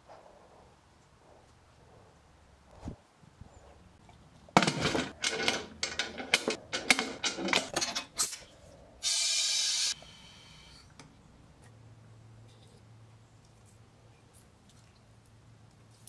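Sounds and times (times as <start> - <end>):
metal clanks and scrapes: 4.6 - 8.5
compressed air hiss: 9.0 - 10.8.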